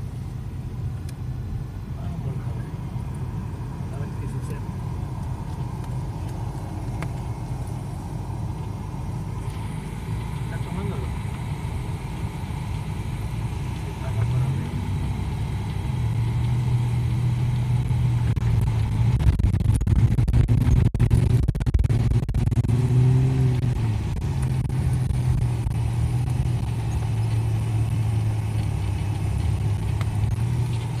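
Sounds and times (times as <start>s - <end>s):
vehicle engine revving: 0.0s - 31.0s
knocks and rattles over rough ground: 23.4s - 31.0s.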